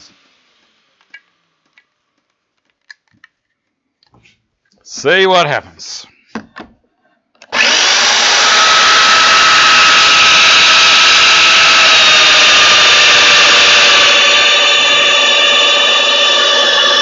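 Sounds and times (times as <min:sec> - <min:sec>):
power tool motor running: 0:07.4 - 0:17.0.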